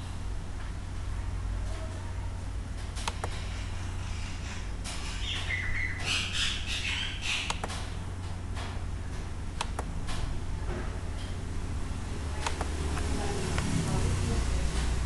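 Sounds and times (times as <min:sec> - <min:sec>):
steady low hum: 0:00.0 - 0:15.0
computer mouse clicks: 0:03.0 - 0:03.4, 0:07.5 - 0:07.8, 0:09.6 - 0:09.9, 0:12.4 - 0:13.7.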